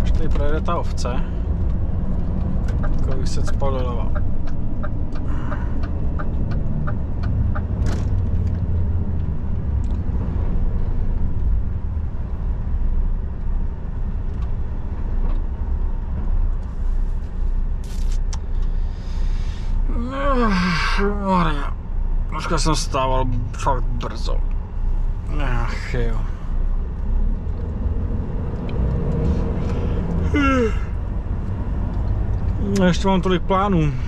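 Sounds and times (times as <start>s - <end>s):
turn signal ticking: 1.4s - 7.8s.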